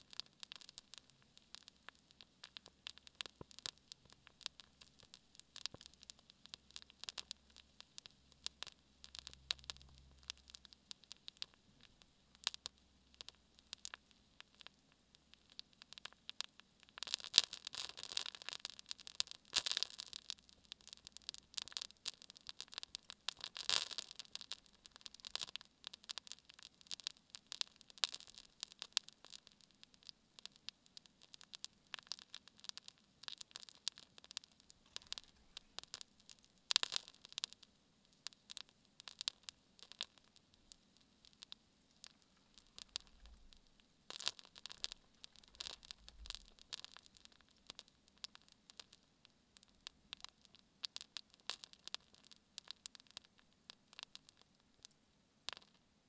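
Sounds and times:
candle crackling and popping: 0.0s - 56.0s.

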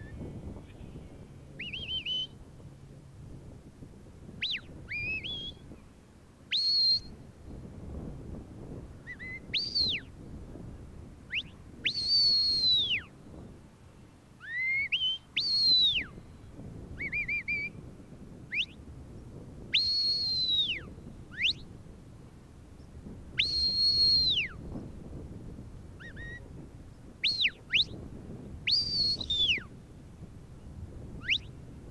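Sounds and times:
shrill whistles: 1.6s - 2.4s, 4.4s - 5.6s, 6.5s - 7.1s, 9.1s - 10.1s, 11.3s - 13.1s, 14.4s - 16.2s, 17.0s - 17.8s, 18.5s - 18.8s, 19.7s - 21.6s, 23.4s - 24.6s, 27.2s - 28.0s, 28.7s - 29.7s, 31.2s - 31.5s
warbling whistle trill: 1.6s - 2.4s, 4.4s - 5.6s, 6.5s - 7.1s, 9.1s - 10.1s, 11.3s - 13.1s, 14.4s - 16.1s, 17.0s - 17.8s, 19.7s - 21.6s, 23.4s - 24.6s, 27.2s - 28.0s, 28.7s - 29.7s, 31.2s - 31.5s.

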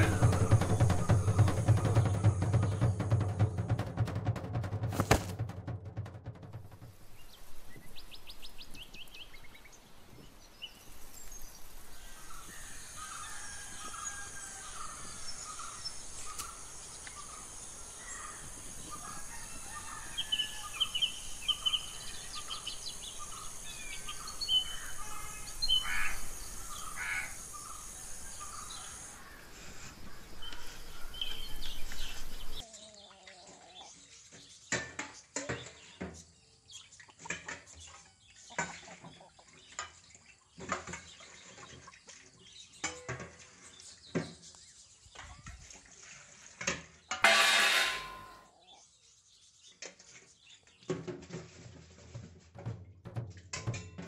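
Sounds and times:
crows cawing: 0.0s - 2.8s, 24.6s - 29.7s
birds chirping: 0.0s - 4.2s, 6.5s - 34.1s
plates clinking while washed: 42.8s - 43.5s, 46.6s - 48.5s.

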